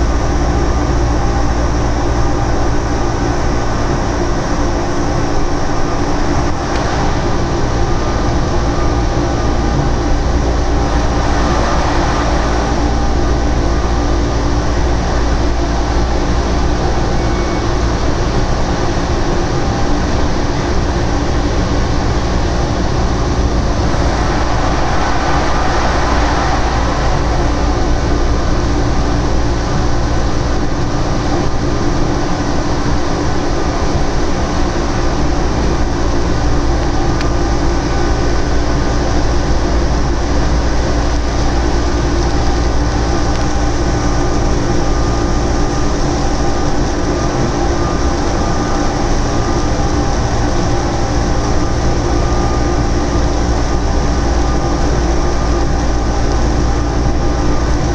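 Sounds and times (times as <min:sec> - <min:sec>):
motor hum: 0:00.0 - 0:39.6.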